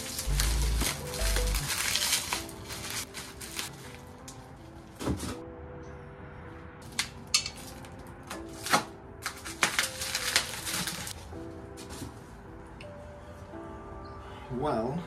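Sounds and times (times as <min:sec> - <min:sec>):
plastic wrapping crinkling: 0:00.0 - 0:05.3, 0:06.8 - 0:11.2
background music: 0:00.0 - 0:15.0.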